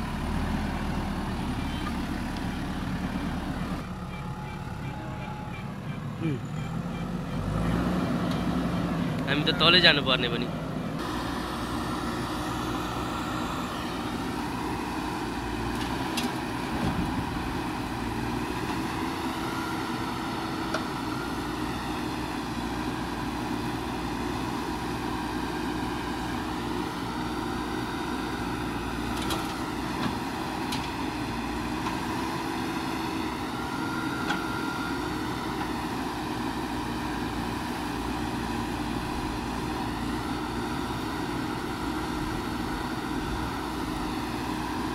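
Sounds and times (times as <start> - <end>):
diesel engine running: 0.0 - 44.9
backhoe digging soil: 11.0 - 44.9.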